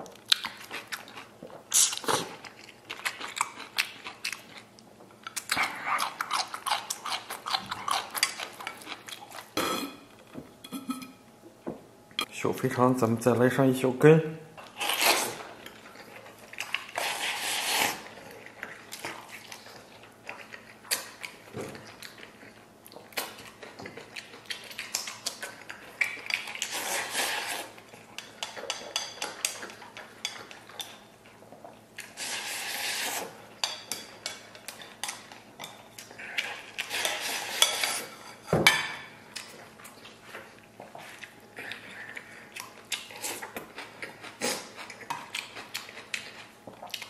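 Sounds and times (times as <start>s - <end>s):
person chewing: 0.0s - 10.0s, 14.6s - 38.2s, 39.2s - 47.0s
person slurping: 16.9s - 18.0s.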